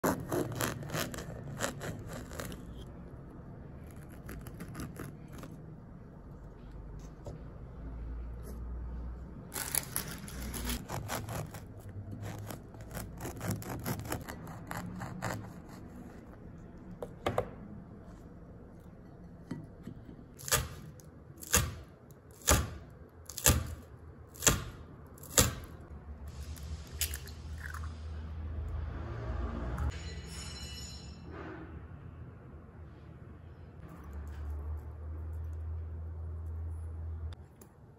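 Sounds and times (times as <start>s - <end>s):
bread crust crackling: 0.0s - 6.3s, 9.5s - 16.5s.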